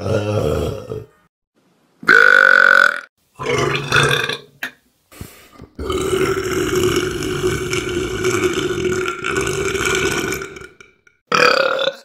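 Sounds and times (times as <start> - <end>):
long drawn-out belch: 2.1 - 4.8, 5.8 - 12.0
person burping: 2.1 - 4.8, 5.8 - 12.0.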